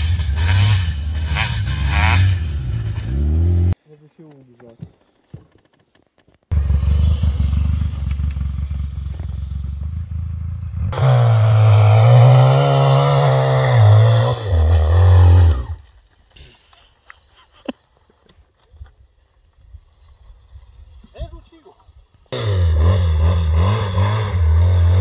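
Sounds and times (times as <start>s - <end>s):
atv engine revving: 0.0s - 3.8s, 6.5s - 15.8s, 22.3s - 25.0s.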